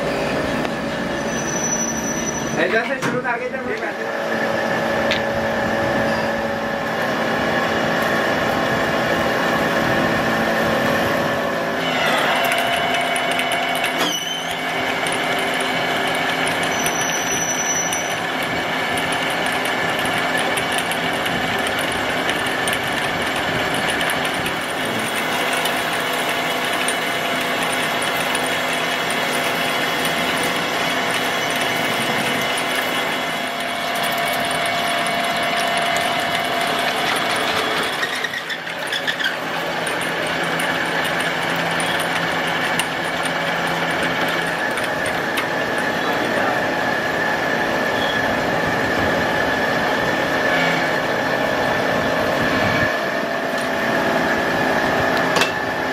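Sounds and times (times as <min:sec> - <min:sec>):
lathe whirring and whining: 0:00.0 - 0:03.0, 0:03.6 - 0:55.9.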